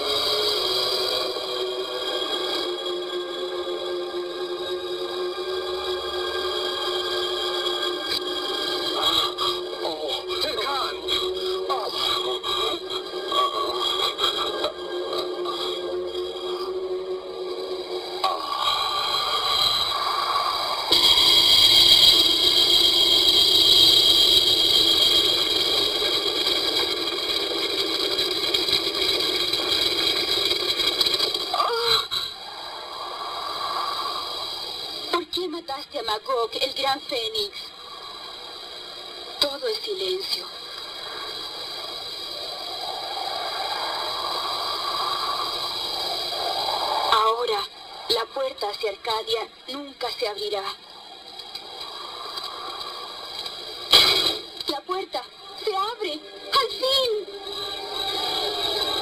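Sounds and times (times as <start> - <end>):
high ringing tones: 0.0 - 31.9
synthesized noisy hiss: 0.0 - 59.0.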